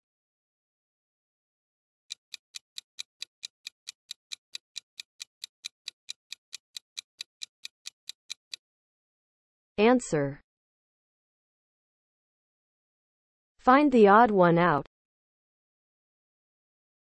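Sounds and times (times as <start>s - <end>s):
clock-like timer ticks: 2.1s - 8.6s.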